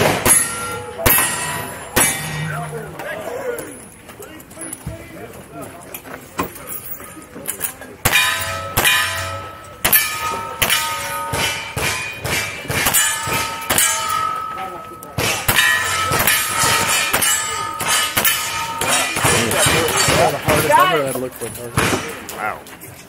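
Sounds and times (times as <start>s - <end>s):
gunshots: 0.0s - 2.7s, 21.8s - 22.3s
steel targets clanging: 0.0s - 4.8s, 6.4s - 22.4s.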